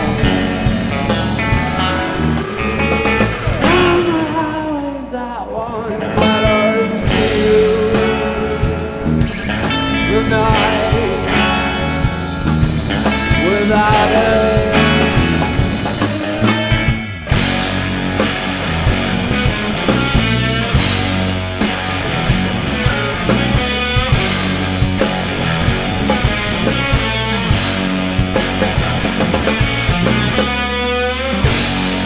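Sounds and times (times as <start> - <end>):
rock band playing live: 0.0 - 32.0.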